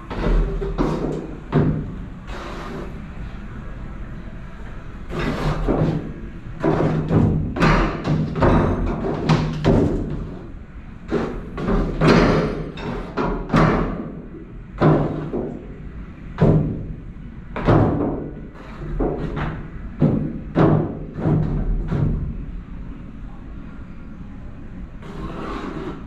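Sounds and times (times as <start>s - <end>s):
boat bumping against walls: 0.0s - 2.0s, 5.1s - 10.5s, 11.1s - 15.8s, 16.4s - 17.0s, 17.6s - 22.4s.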